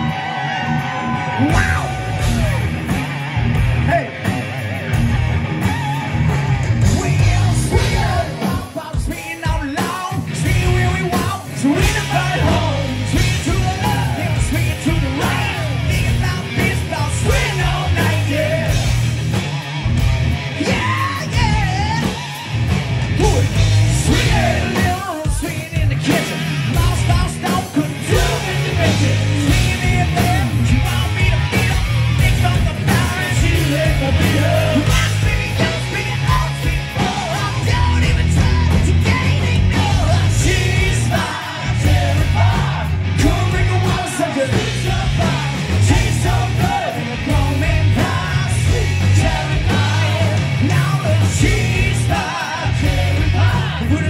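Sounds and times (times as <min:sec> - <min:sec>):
singer shouting vocals: 0:00.0 - 0:02.8, 0:03.8 - 0:04.9, 0:05.5 - 0:18.9, 0:20.6 - 0:54.0
bass guitar: 0:00.0 - 0:54.0
distorted electric guitars: 0:00.0 - 0:54.0
drums: 0:00.0 - 0:54.0.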